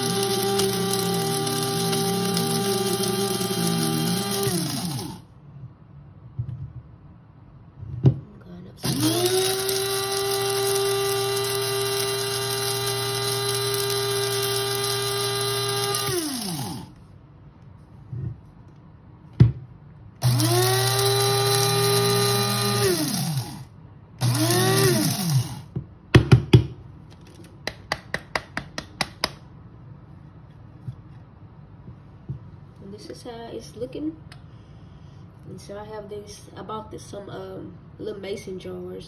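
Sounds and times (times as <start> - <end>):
electric spice grinder running: 0.0 - 5.2, 8.8 - 17.0, 20.2 - 25.7.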